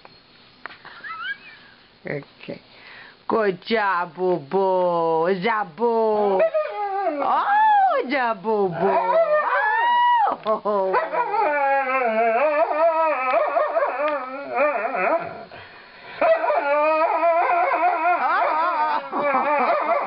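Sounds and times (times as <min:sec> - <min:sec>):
dog howling: 0:06.2 - 0:08.0, 0:08.8 - 0:15.5, 0:16.2 - 0:20.0.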